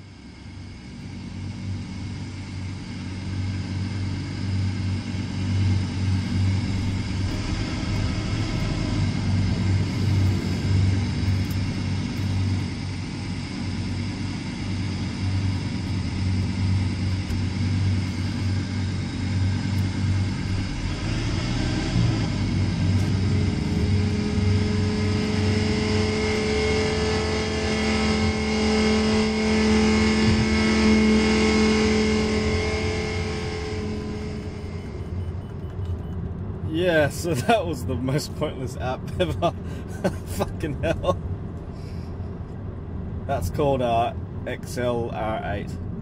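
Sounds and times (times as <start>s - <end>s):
car engine drone: 0.0s - 46.0s.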